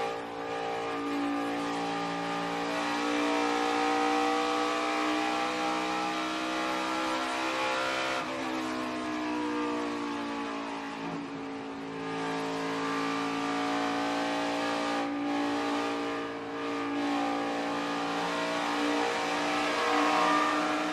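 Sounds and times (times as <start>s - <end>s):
race car engine at high revs: 0.0s - 20.9s.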